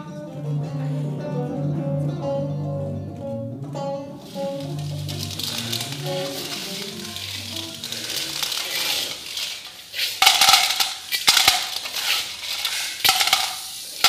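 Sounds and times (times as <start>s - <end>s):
metal spoons scraping pans: 4.4s - 14.0s.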